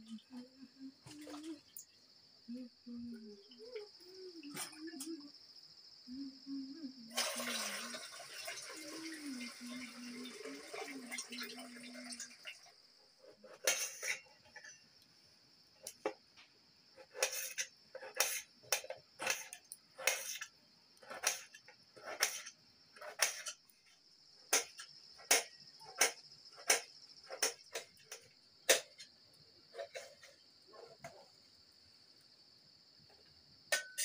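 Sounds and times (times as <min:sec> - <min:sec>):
insects chirring: 0:00.0 - 0:34.0
water poured into metal bucket: 0:07.1 - 0:12.8.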